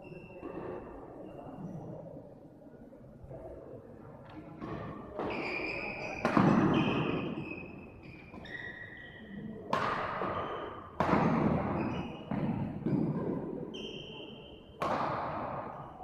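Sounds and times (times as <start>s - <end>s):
shoes squeaking on court floor: 4.6s - 9.4s, 10.2s - 13.1s, 13.7s - 14.6s.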